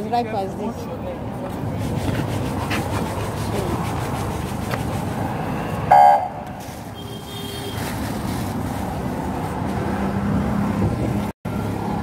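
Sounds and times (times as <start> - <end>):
street traffic: 0.0 - 12.0
car horn toot: 5.9 - 6.4, 7.0 - 7.9.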